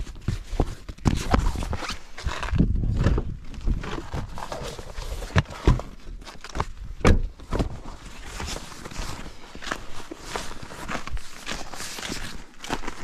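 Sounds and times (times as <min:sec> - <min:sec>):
knocks and thuds: 0:07.0 - 0:07.8
footsteps: 0:07.2 - 0:13.0.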